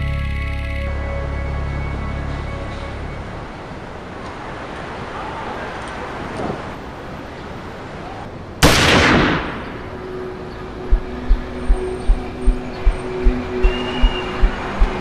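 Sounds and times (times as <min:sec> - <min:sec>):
loud gunshot: 0:08.6 - 0:09.8
low steady underscore: 0:08.6 - 0:15.0.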